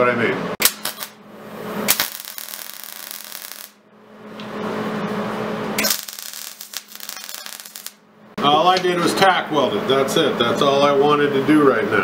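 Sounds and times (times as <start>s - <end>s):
welder arc crackling: 0.6s - 1.2s, 1.8s - 3.8s, 5.8s - 8.0s.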